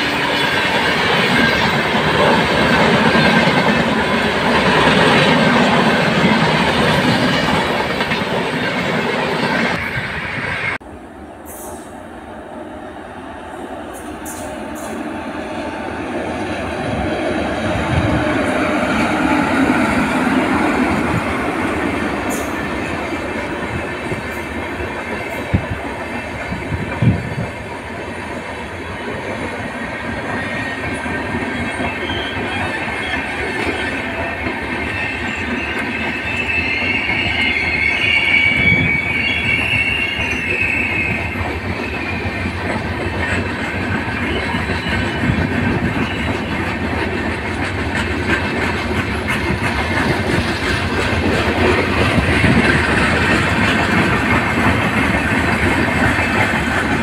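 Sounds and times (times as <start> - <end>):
train wheels on track: 0.0 - 57.0
high wheel squeal: 30.4 - 46.6.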